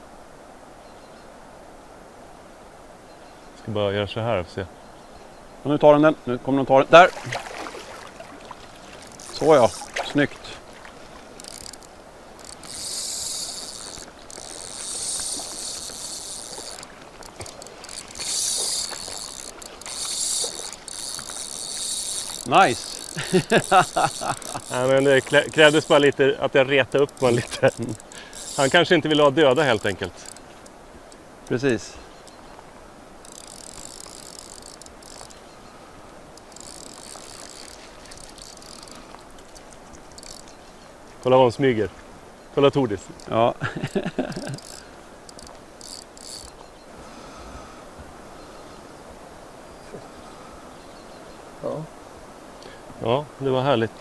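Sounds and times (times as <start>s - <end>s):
fly reel drag ratcheting: 8.7s - 26.2s, 26.9s - 31.3s, 33.2s - 35.5s, 36.2s - 40.6s, 44.3s - 46.7s.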